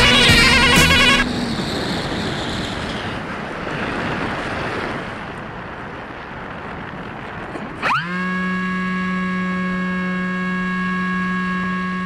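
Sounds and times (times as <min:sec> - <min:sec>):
waves washing on sandy shore: 0:00.0 - 0:08.1
wind on microphone: 0:00.0 - 0:12.0.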